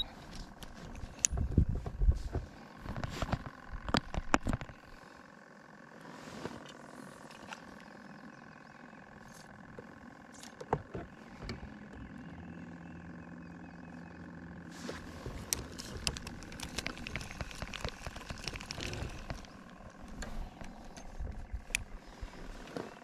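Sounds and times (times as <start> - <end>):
sharp clicks and knocks: 0.6 - 4.8, 15.3 - 21.9.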